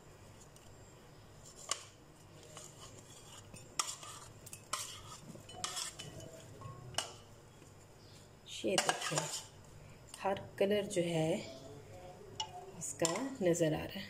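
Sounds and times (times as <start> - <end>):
utensil clinking against dishes: 3.5 - 7.2.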